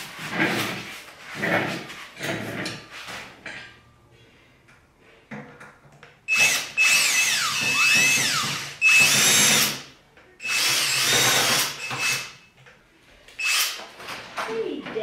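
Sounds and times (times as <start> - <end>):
cordless drill whining: 6.3 - 9.8, 10.4 - 12.3, 13.4 - 13.8.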